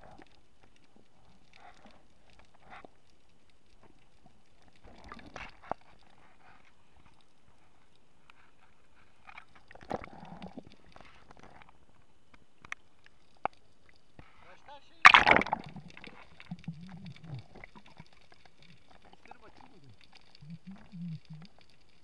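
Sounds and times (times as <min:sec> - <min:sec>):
water splashing: 0:14.9 - 0:22.0.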